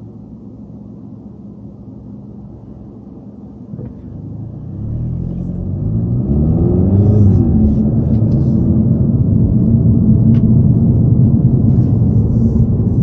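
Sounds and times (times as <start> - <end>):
road noise inside car: 0.0 - 13.0
car engine accelerating: 3.7 - 13.0.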